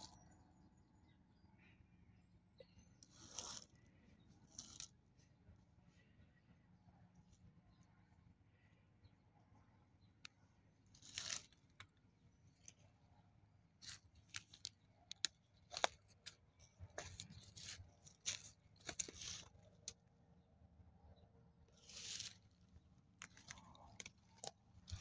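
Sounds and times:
dry leaves and twigs crunching: 0:03.1 - 0:03.8, 0:04.4 - 0:04.9, 0:10.9 - 0:12.9, 0:13.8 - 0:20.0, 0:21.7 - 0:25.0.

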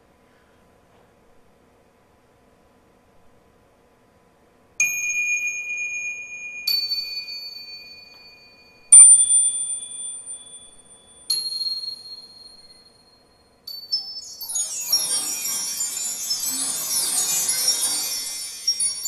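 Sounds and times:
bell-like chime strikes: 0:13.7 - 0:19.0.

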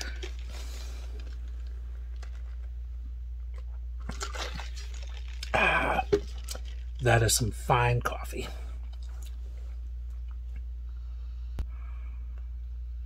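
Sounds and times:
low hum: 0:00.0 - 0:13.0
sipping and swallowing: 0:03.4 - 0:07.0, 0:08.7 - 0:10.7.

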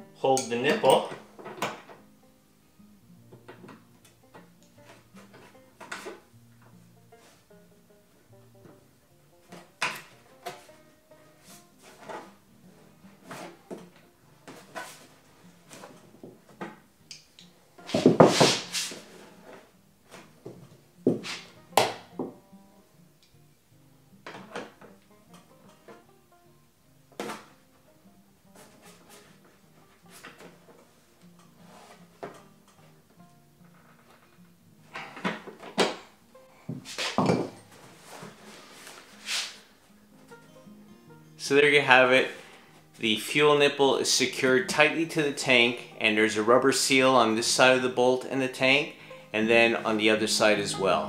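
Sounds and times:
tools clattering on plastic tank: 0:00.4 - 0:02.0, 0:37.2 - 0:37.7
tools knocking and clunking: 0:00.4 - 0:02.0, 0:03.3 - 0:06.7, 0:09.5 - 0:10.7, 0:24.2 - 0:26.0, 0:36.7 - 0:37.8
brushing slide: 0:17.9 - 0:19.4, 0:38.0 - 0:39.7.

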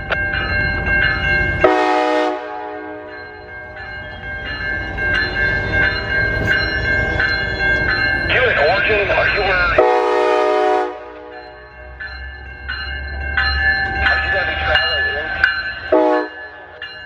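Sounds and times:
low rumble of train: 0:00.0 - 0:17.0
railroad crossing bell ringing: 0:00.0 - 0:17.0
train horn: 0:01.6 - 0:03.2, 0:09.8 - 0:11.5, 0:15.9 - 0:16.4.

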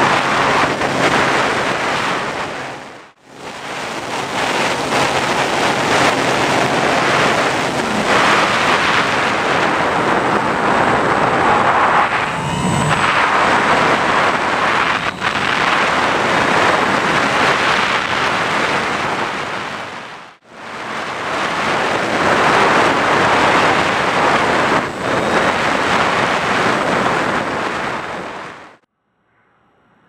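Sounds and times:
model plane rushing noise: 0:00.0 - 0:28.8.

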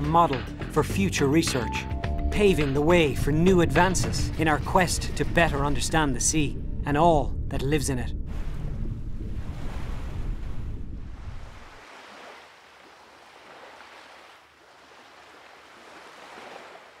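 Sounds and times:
deep rumble: 0:02.1 - 0:11.8
ocean waves washing: 0:02.3 - 0:07.0, 0:07.6 - 0:17.0.

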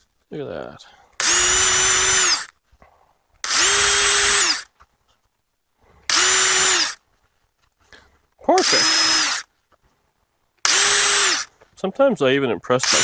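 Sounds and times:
electric drill whining: 0:01.2 - 0:02.6, 0:03.4 - 0:04.8, 0:06.1 - 0:07.0, 0:08.5 - 0:09.5, 0:10.6 - 0:11.6, 0:12.8 - 0:13.0.

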